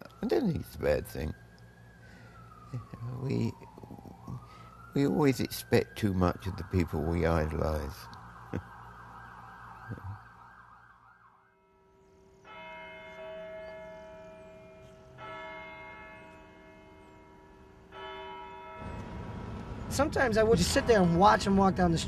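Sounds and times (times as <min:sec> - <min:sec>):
street noise: 0:00.0 - 0:10.5, 0:12.1 - 0:22.0
large tower bell tolling: 0:12.4 - 0:22.0.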